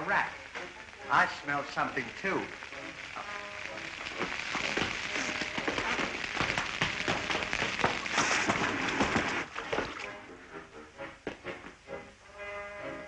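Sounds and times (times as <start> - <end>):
hissing sizzle in water: 0.0 - 10.2
faint music: 0.0 - 13.0.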